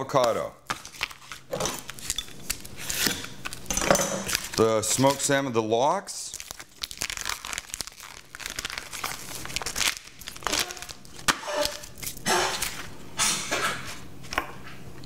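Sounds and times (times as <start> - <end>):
plastic wrapping crinkling: 0.1 - 5.4, 6.2 - 13.0.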